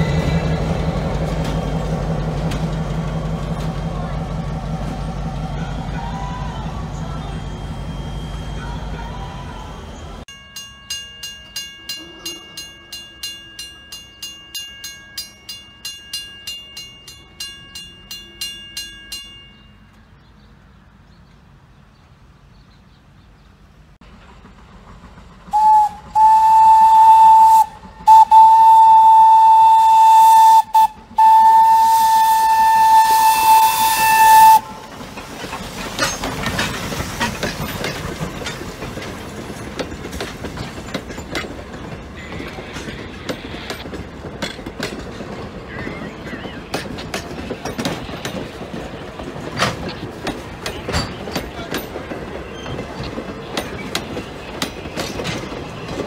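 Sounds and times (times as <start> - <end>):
train rumble and wheel clatter: 0.0 - 56.0
railroad crossing bell ringing: 6.9 - 20.1
train whistle blasts: 25.5 - 34.8.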